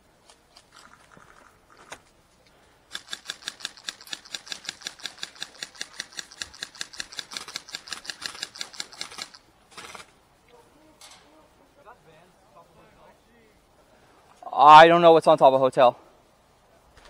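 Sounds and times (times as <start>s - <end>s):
airsoft rifle rapid shots: 2.9s - 10.1s.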